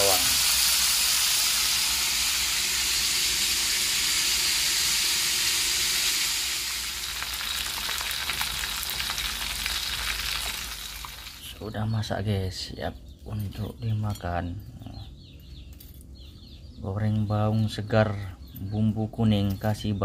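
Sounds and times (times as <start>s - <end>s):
fish sizzling in hot oil: 0.0s - 11.6s
oil crackling and popping: 0.0s - 11.7s.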